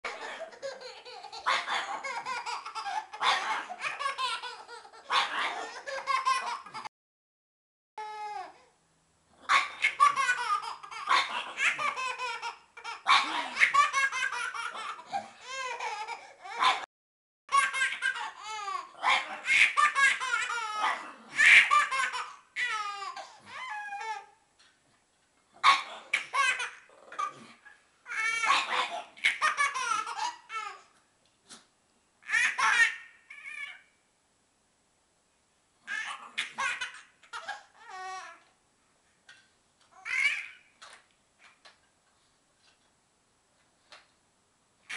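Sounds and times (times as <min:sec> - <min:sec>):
baby laughing: 0:00.1 - 0:06.9, 0:09.5 - 0:16.9, 0:17.5 - 0:24.3, 0:25.7 - 0:31.0, 0:32.2 - 0:33.9, 0:35.9 - 0:38.4, 0:40.0 - 0:40.7.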